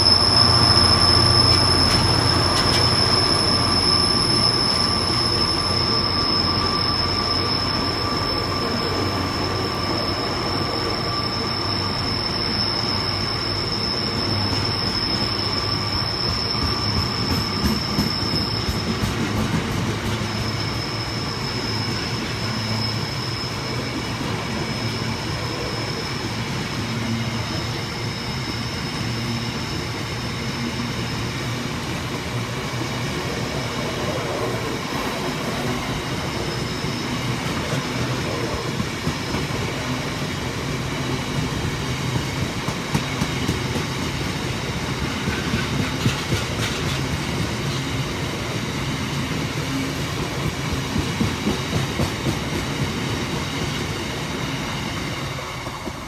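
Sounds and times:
diesel locomotive engine: 0.0 - 56.0
high-pitched wheel squeal: 0.0 - 56.0
train wheels rumbling on rail: 0.0 - 56.0.

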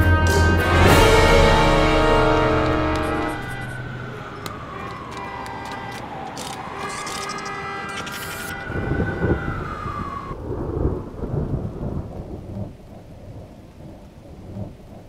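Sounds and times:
sliding high tone: 0.0 - 10.4
deep rumbling with low booms: 10.3 - 15.0.

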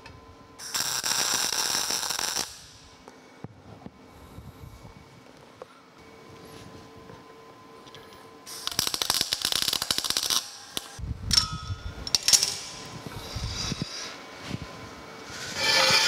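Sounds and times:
welding arc crackling: 0.6 - 3.0, 8.5 - 11.0.

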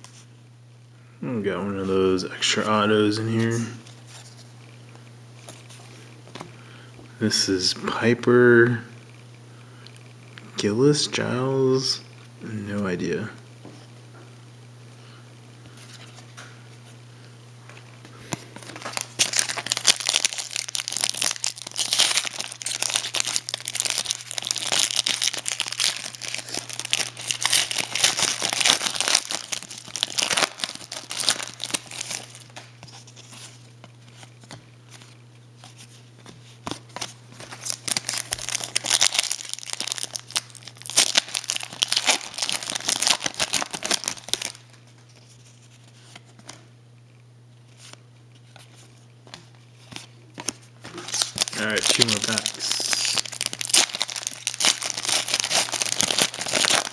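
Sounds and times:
plastic wrapper crinkling and tearing: 18.6 - 35.2, 36.7 - 46.3, 49.9 - 56.9.

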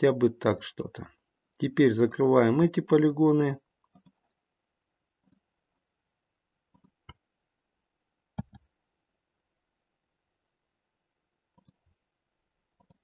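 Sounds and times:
faint computer mouse clicks: 6.7 - 7.2, 8.4 - 8.7, 11.6 - 11.8, 12.8 - 13.0.

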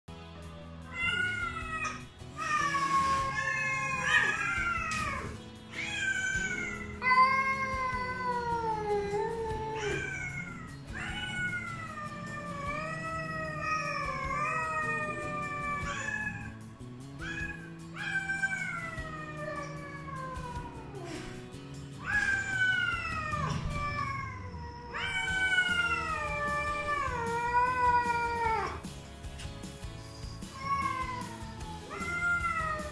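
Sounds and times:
cats meowing loudly: 0.9 - 16.6, 17.2 - 21.4, 22.0 - 28.8, 30.2 - 32.9.

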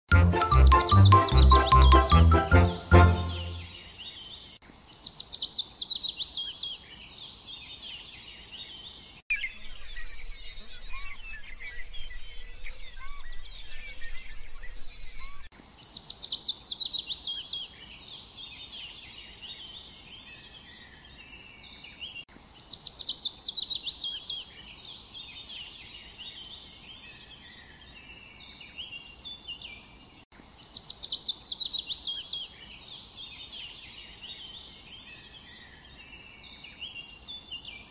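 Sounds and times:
bird song falling high notes: 0.1 - 4.0
birds chirping: 0.1 - 37.9.

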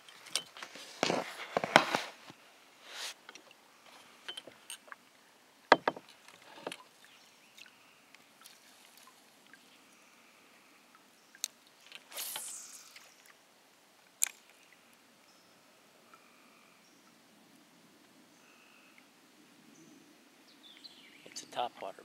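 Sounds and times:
brief rushing hiss: 2.8 - 3.2, 12.1 - 13.0.

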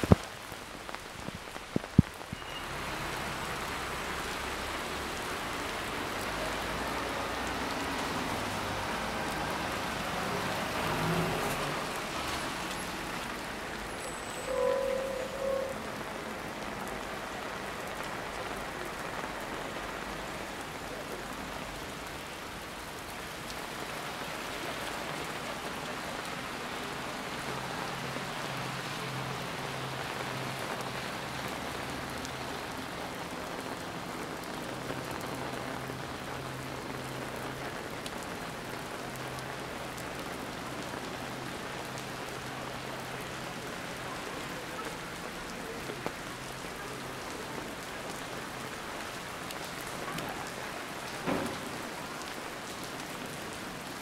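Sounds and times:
rain falling: 0.0 - 54.0.

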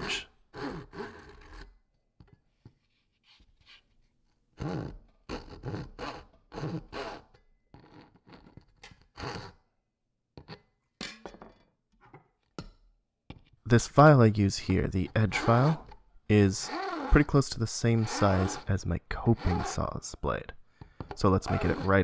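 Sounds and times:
hand saw cutting plywood: 0.0 - 1.8, 4.6 - 9.6, 14.7 - 20.0, 21.0 - 22.0.

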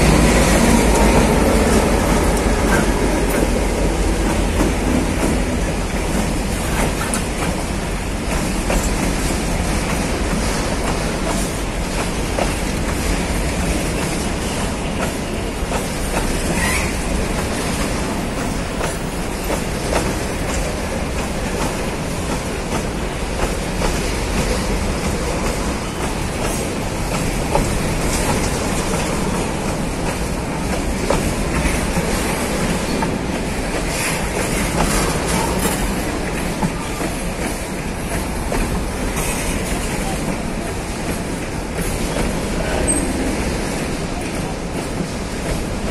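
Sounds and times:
steel wheels rumbling: 0.0 - 45.9
wheels clacking over rail joints: 0.0 - 45.9
wheel squeal: 16.4 - 17.1.

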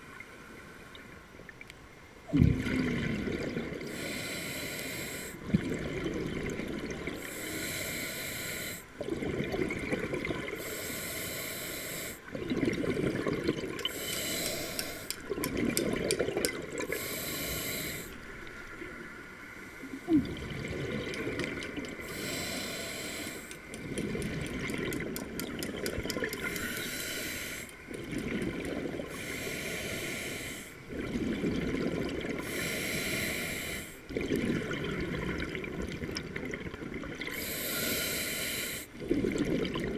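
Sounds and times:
exhaled air bubbling: 2.2 - 18.6, 19.9 - 39.9
regulator inhale hiss: 3.9 - 5.4, 7.2 - 9.0, 10.6 - 12.3, 13.8 - 15.3, 16.9 - 18.3, 22.0 - 23.8, 26.4 - 27.8, 29.1 - 30.8, 32.4 - 34.1, 37.3 - 39.0.

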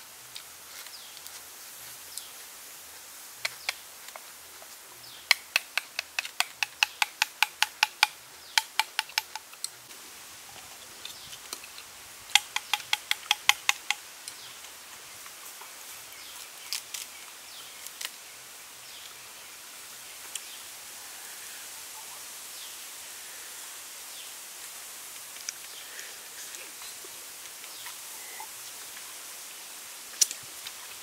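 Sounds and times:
faint outdoor background: 0.0 - 31.0.

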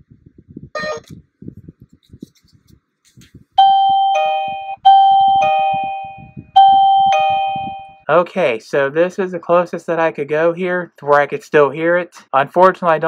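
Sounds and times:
doorbell ding-dong chime: 3.6 - 8.0.

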